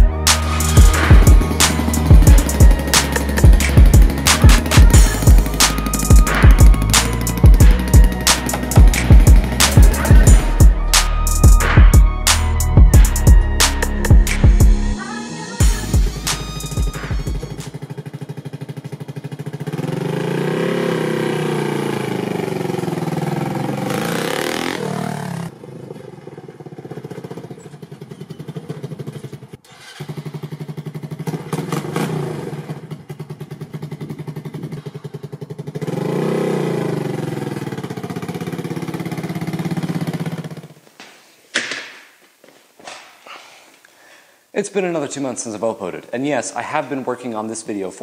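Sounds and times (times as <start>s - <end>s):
motorcycle engine revving: 0.0s - 12.2s, 15.7s - 40.7s.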